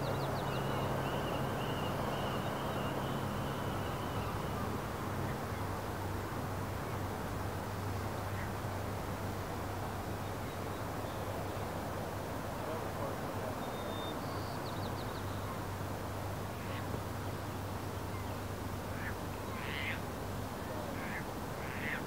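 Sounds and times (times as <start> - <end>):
outdoor background noise by water: 0.0 - 22.0
faint bird calls: 18.9 - 20.0, 21.0 - 22.0.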